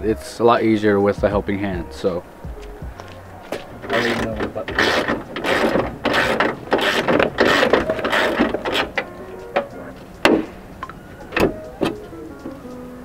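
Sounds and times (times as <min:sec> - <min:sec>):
sharp clicks and knocks: 0:03.8 - 0:12.8.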